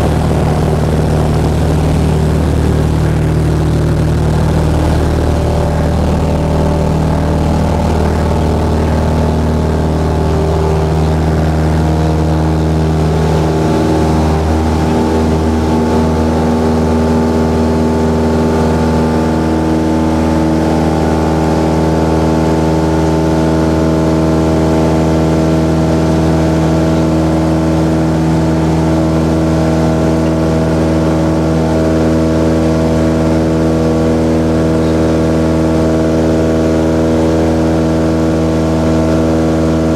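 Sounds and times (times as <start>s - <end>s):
light aircraft engine and propeller: 0.0s - 39.9s.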